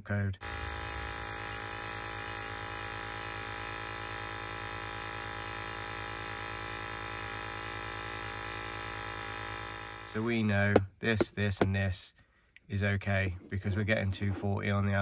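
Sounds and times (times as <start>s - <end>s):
gas boiler humming: 0.4s - 11.7s.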